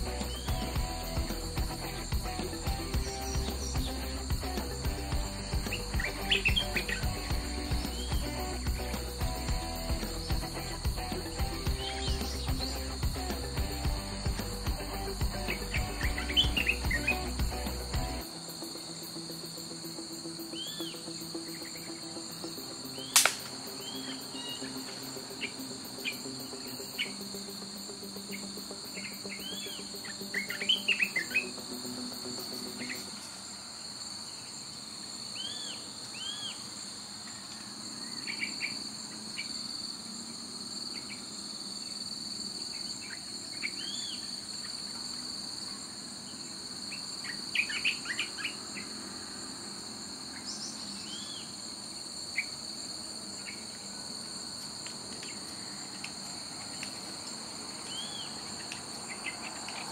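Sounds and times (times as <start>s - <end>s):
bird chirps: 0.0s - 18.2s, 28.3s - 31.6s
insects droning: 0.0s - 59.9s.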